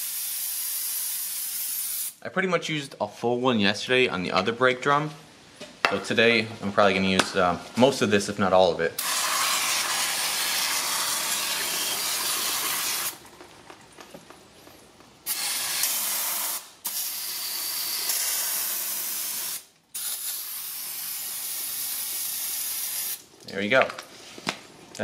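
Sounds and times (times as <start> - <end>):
aerosol can spraying: 0.0 - 2.2, 9.0 - 13.2, 15.3 - 23.2.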